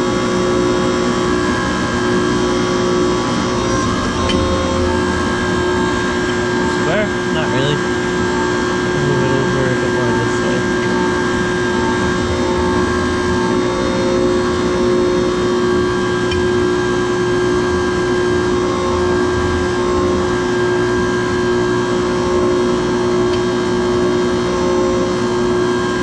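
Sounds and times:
hydraulic pump humming: 0:00.0 - 0:26.0.

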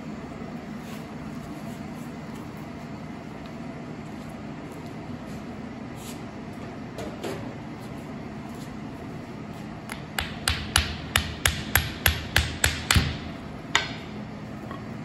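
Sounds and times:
hammer tapping on metal gear: 0:09.9 - 0:14.1.

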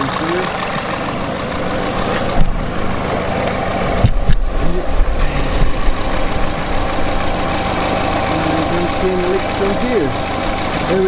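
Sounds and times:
car engine idling: 0:00.0 - 0:11.0
low thumps: 0:02.0 - 0:02.9, 0:03.5 - 0:07.4.

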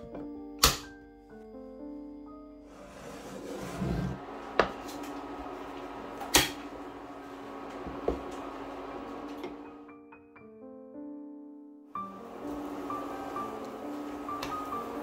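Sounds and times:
hot pan sizzling: 0:12.0 - 0:15.0.

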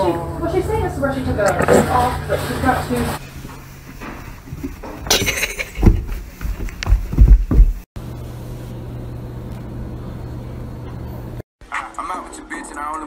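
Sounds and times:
steady low hum: 0:00.0 - 0:11.4
dull thumps and knocks: 0:03.5 - 0:07.9.

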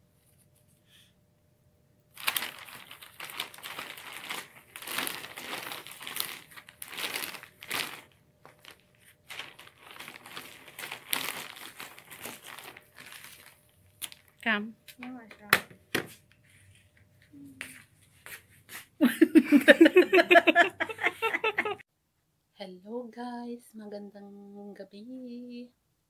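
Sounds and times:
plastic bags crinkling: 0:02.1 - 0:14.6.

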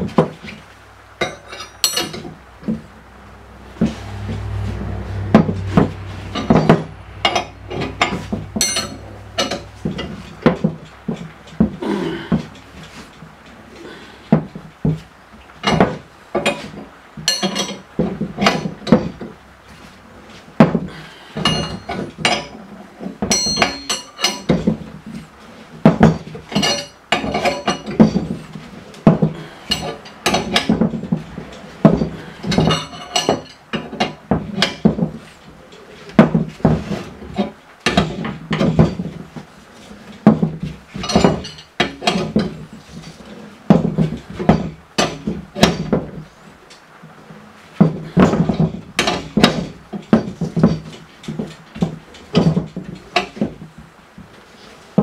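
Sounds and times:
wrench clinking against metal: 0:07.2 - 0:09.6, 0:23.3 - 0:24.5.

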